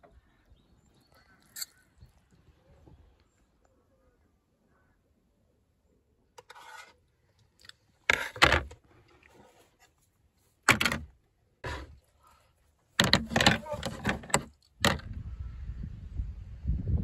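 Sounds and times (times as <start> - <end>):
plastic plates clattering on table: 13.0 - 15.0
plastic plates rattling: 13.0 - 15.0.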